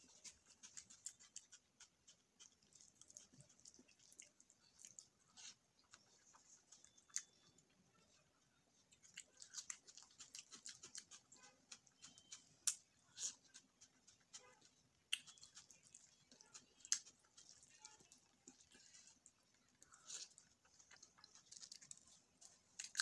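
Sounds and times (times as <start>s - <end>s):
chewing: 0.0s - 23.0s
wet mouth clicks and smacks: 15.0s - 15.9s.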